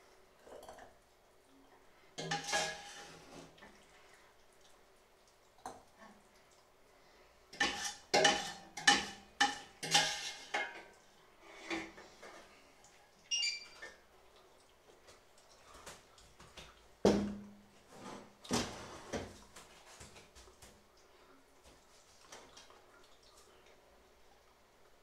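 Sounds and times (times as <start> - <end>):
ladle scraping metal pot: 2.2 - 3.6, 7.6 - 12.0.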